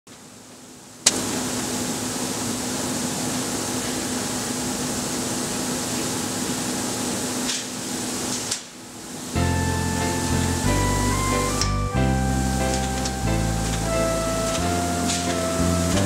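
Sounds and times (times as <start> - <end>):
machine hum: 9.4 - 16.0.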